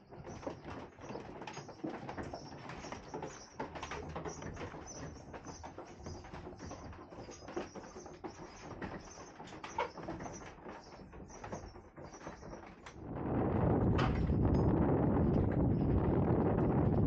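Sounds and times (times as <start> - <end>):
wooden gears squeaking: 0.0 - 13.0
clicks and creaks: 0.0 - 17.0
rush of wind noise: 12.9 - 17.0
low rumble: 13.0 - 17.0.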